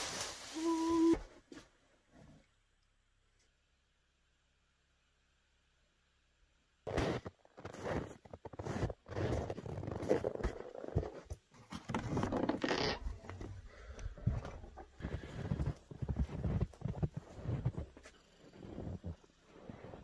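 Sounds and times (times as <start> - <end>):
footsteps crunching in snow: 6.9 - 12.3, 14.2 - 20.0
scraping and rustling: 6.9 - 20.0.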